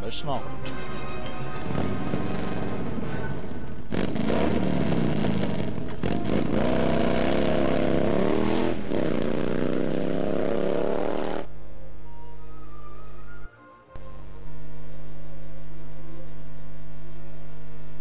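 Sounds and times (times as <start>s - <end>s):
motorcycle engine revving: 1.6s - 11.6s.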